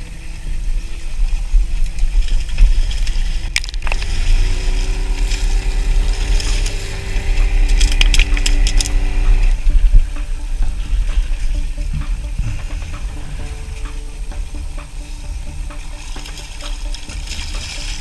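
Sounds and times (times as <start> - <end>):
steady hum: 0.0 - 18.0
wind buffeting microphone: 0.0 - 18.0.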